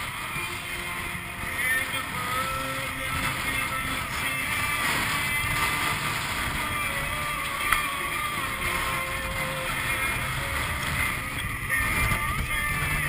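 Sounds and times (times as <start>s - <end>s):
water rushing past hull: 0.0s - 13.0s
wind noise: 0.0s - 13.0s.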